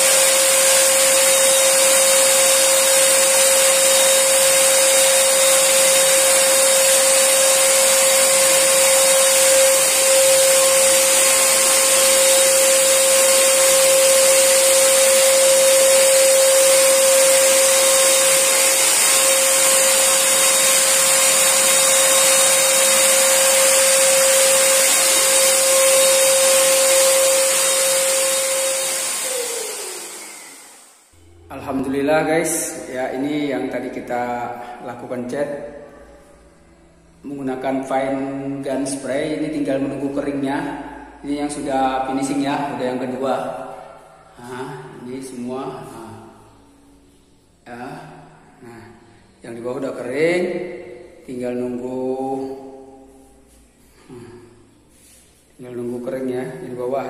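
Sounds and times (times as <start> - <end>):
paint sprayer blower whining: 0.0 - 31.8.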